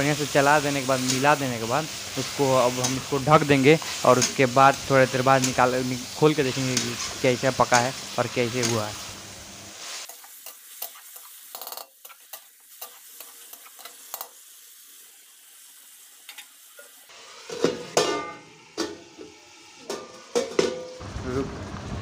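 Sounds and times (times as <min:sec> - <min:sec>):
food sizzling: 0:00.0 - 0:22.0
metal lid clanking on pan: 0:17.5 - 0:19.0, 0:19.8 - 0:21.0.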